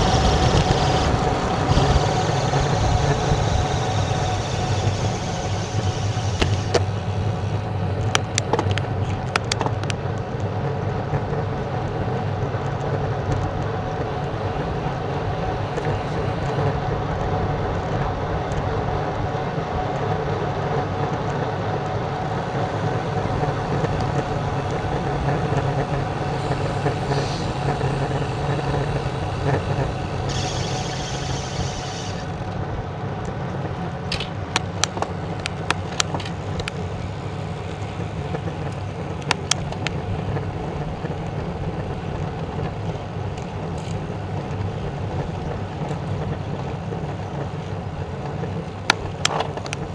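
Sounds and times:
freewheel ratchet buzz: 0.0 - 7.6, 23.7 - 32.6
bicycle tyre noise: 0.0 - 49.9
wind rush on microphone: 0.0 - 49.9.

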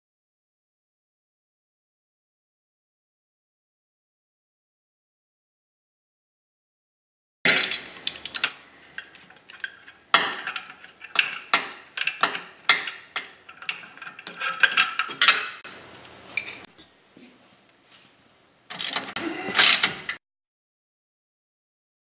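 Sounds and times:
steel tools clinking: 7.5 - 15.6, 18.7 - 20.0.

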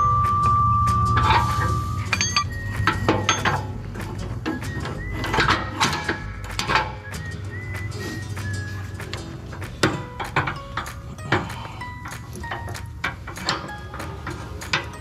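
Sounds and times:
steel clinks and knocks: 0.0 - 3.8.

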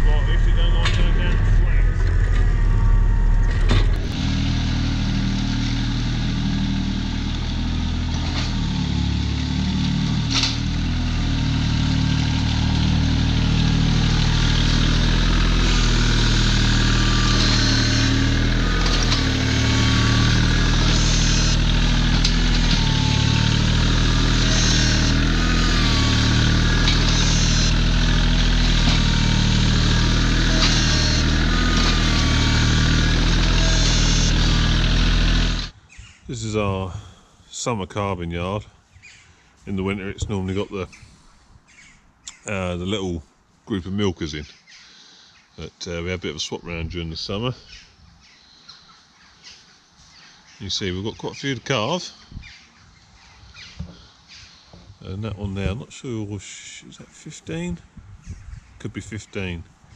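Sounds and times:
tractor diesel engine running: 0.0 - 35.9
scraper blade dragging muck: 11.8 - 35.7.

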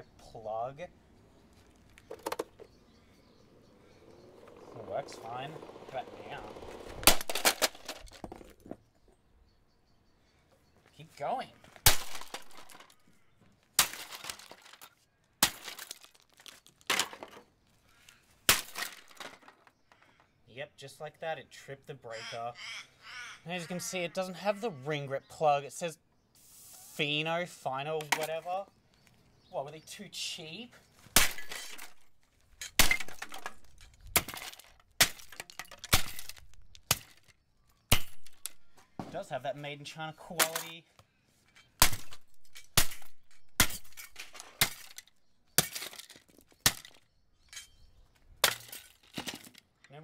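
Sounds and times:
plastic cracking and pieces clattering: 6.6 - 8.8, 11.8 - 13.0, 13.6 - 17.5, 18.1 - 20.2, 31.2 - 37.4, 41.8 - 47.6, 48.4 - 49.9
sledgehammer striking plastic: 41.8 - 45.0.

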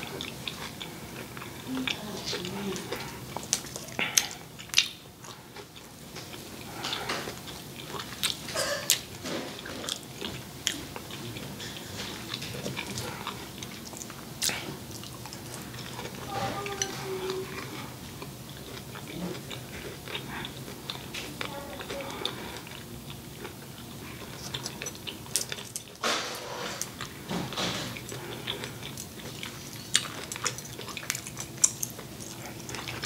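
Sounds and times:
chewing noodles: 0.0 - 33.0.

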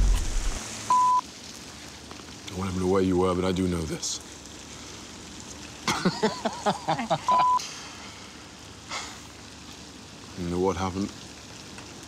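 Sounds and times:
rain hissing: 0.0 - 12.0
censor bleep: 0.9 - 1.2, 7.3 - 7.6.

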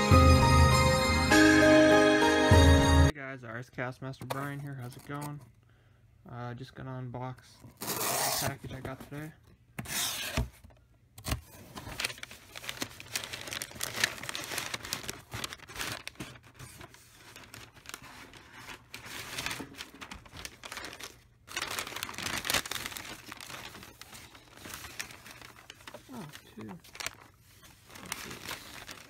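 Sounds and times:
paper tearing: 7.8 - 8.6, 11.2 - 29.0
paper crinkling and crumpling: 11.2 - 29.0.

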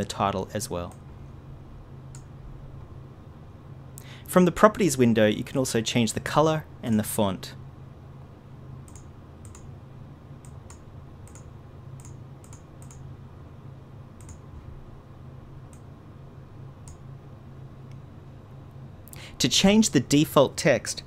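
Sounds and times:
low background hum: 0.0 - 21.0
computer mouse clicking: 2.1 - 2.3, 8.9 - 9.7, 10.4 - 13.0, 14.2 - 14.4, 16.8 - 17.0.

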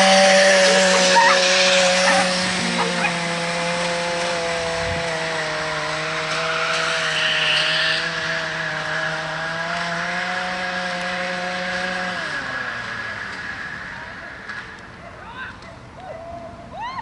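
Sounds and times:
lure motor running: 0.0 - 6.8.

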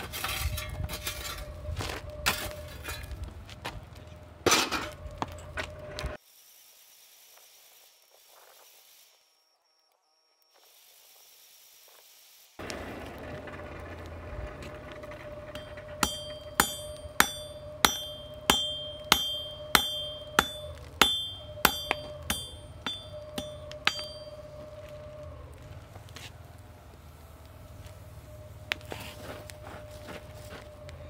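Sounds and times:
hammer ringing on anvil: 15.5 - 24.9.

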